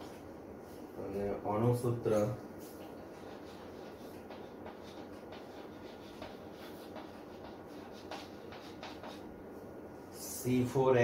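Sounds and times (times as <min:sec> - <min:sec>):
faint room hiss: 0:00.0 - 0:11.0
pen writing strokes: 0:02.6 - 0:09.3.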